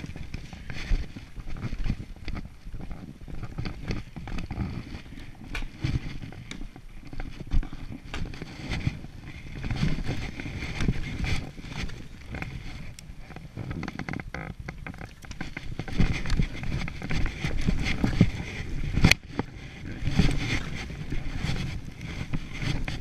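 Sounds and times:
wind noise on microphone: 0:00.0 - 0:23.0
short scrapes and clicks: 0:03.4 - 0:23.0.

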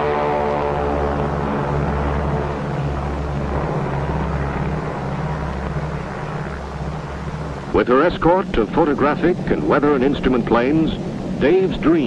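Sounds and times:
propeller plane engines droning: 0:00.0 - 0:12.0.

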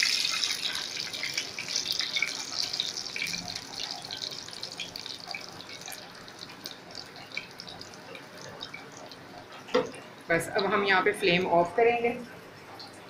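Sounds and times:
hot oil sizzling and crackling: 0:00.0 - 0:11.5.

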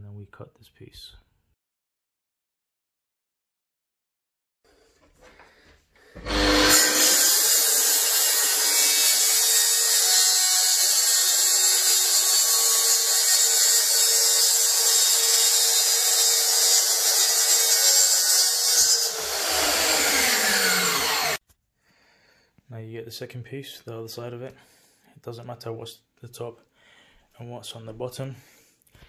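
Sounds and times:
saw motor winding down: 0:06.2 - 0:09.3, 0:18.9 - 0:21.4
track saw cutting with whine: 0:06.2 - 0:21.4.

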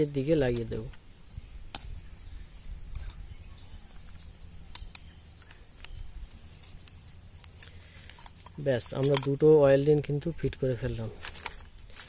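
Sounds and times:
low steady hum: 0:00.0 - 0:12.0
sharp metallic clicks: 0:04.0 - 0:05.2.

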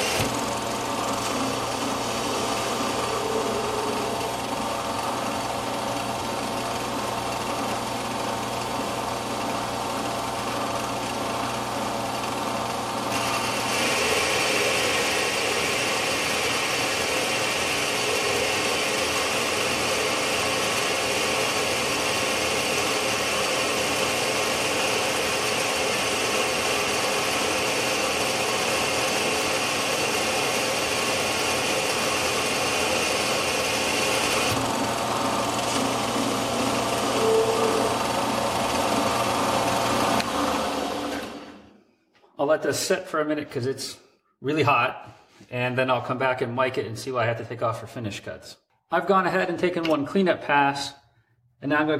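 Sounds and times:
metal lathe gear drive humming: 0:00.0 - 0:41.4
cutting tool hissing on steel: 0:01.8 - 0:04.6, 0:37.1 - 0:38.0.

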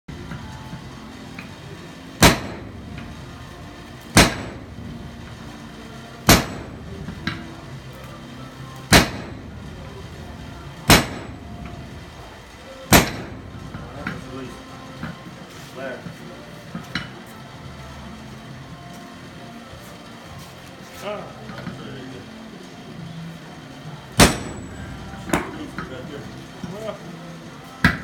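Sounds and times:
sledgehammer striking anvil: 0:02.2 - 0:03.1, 0:04.1 - 0:04.7, 0:06.2 - 0:07.4, 0:08.9 - 0:09.6, 0:10.9 - 0:11.9, 0:12.9 - 0:14.2, 0:24.2 - 0:26.0.

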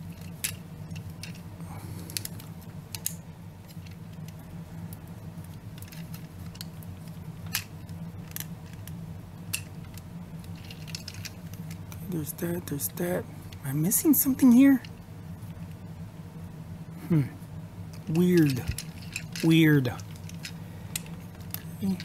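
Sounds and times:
steady low hum: 0:00.0 - 0:22.0
plastic parts clicking and snapping: 0:02.1 - 0:04.4.

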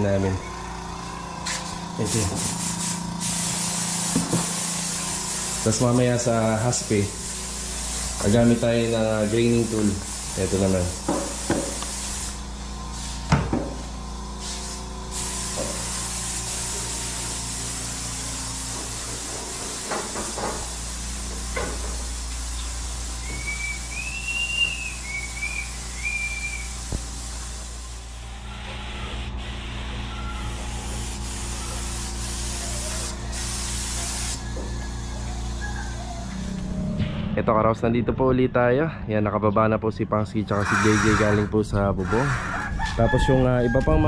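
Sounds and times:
paint spray gun hissing: 0:00.7 - 0:36.4
high chirping: 0:23.2 - 0:26.8.

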